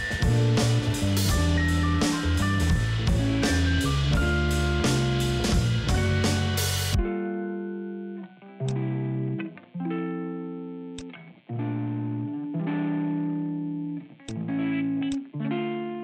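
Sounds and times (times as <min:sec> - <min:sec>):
background music held chords: 0:00.0 - 0:16.0
short sharp clicks: 0:11.0 - 0:11.3, 0:14.2 - 0:15.3.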